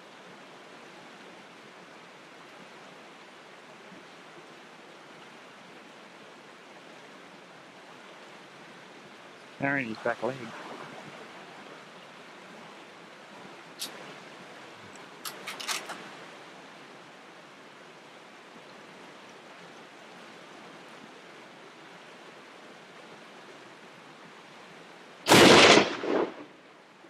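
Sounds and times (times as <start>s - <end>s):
faint outdoor hiss: 0.0s - 27.0s
rifle shot: 25.3s - 26.6s.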